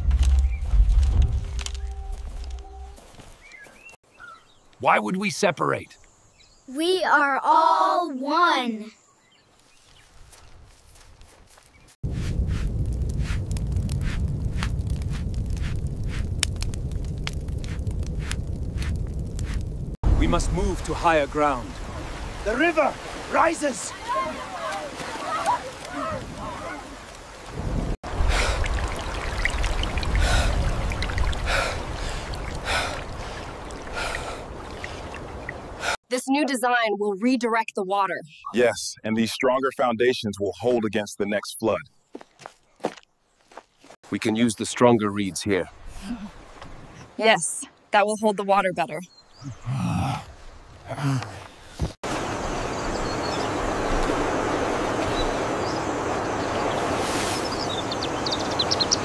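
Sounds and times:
deep rumble: 0:00.0 - 0:03.0, 0:12.0 - 0:21.0
rushing floodwater: 0:20.1 - 0:36.0, 0:51.8 - 0:59.0.

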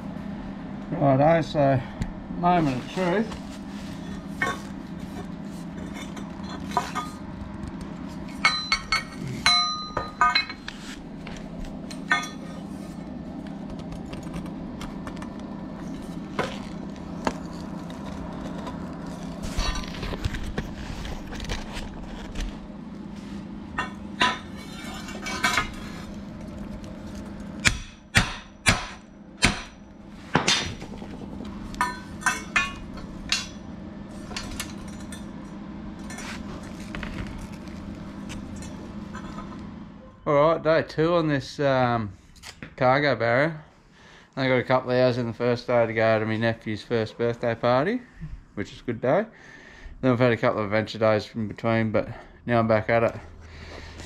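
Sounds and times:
steady low hum: 0:00.0 - 0:54.0
steel tubes clinking and knocking: 0:08.4 - 0:10.6.

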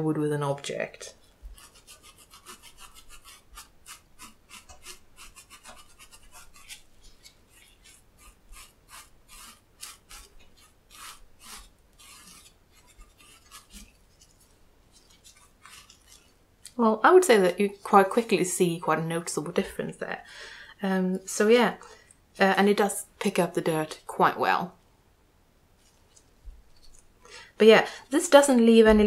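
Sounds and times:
sponge scrubbing cork: 0:01.2 - 0:16.4, 0:17.1 - 0:19.4.

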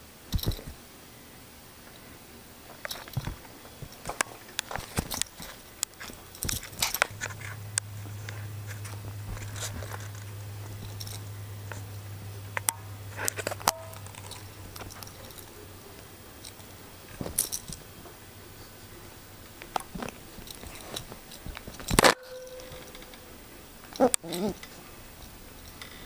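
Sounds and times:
low steady hum: 0:00.0 - 0:26.0
small clicks and crunches: 0:02.7 - 0:18.2, 0:19.5 - 0:23.2.

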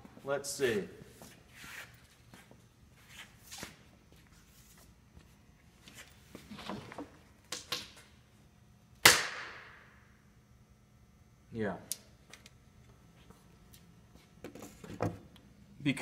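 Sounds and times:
wood snapping with loud crack: 0:09.0 - 0:09.7.

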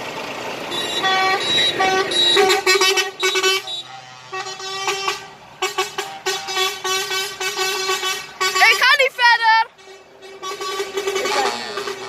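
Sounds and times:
truck air horn blasts: 0:00.7 - 0:12.0.

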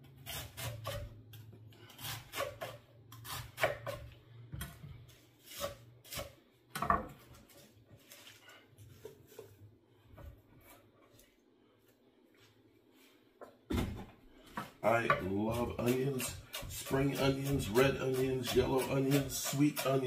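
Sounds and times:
knife chopping on wooden board: 0:02.1 - 0:04.8, 0:15.1 - 0:20.0.

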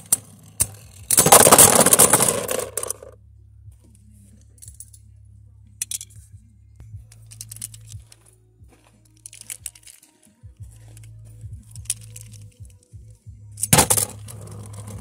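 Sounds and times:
spinning tops clattering: 0:00.0 - 0:03.1, 0:10.9 - 0:12.6
plastic parts clicking: 0:07.1 - 0:08.2, 0:09.1 - 0:10.1, 0:11.7 - 0:12.8.

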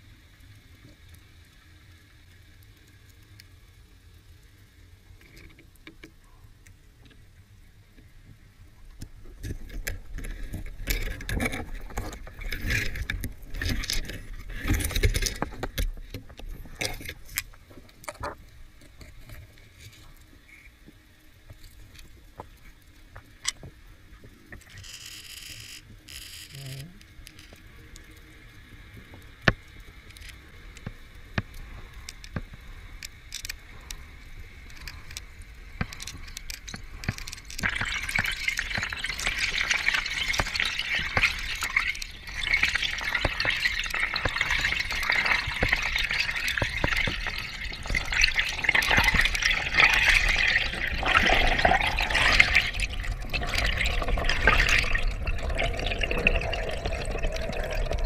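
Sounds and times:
water rushing: 0:37.6 - 0:58.0.

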